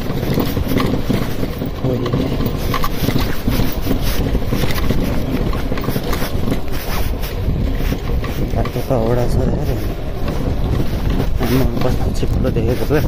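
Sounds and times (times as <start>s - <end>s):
motorcycle engine running low: 0.0s - 13.0s
motorcycle rattling over stones: 0.0s - 13.0s
wind buffeting microphone: 0.0s - 13.0s.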